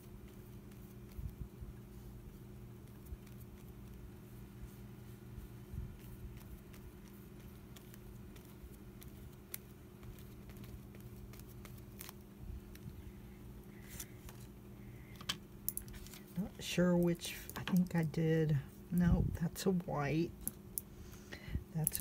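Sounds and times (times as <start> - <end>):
electric fan humming: 0.0 - 22.0
brush and paper clicks and taps: 0.1 - 13.1.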